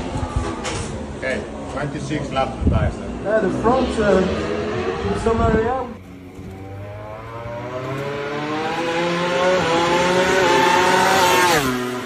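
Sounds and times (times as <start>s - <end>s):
racing engine accelerating: 2.4s - 12.0s.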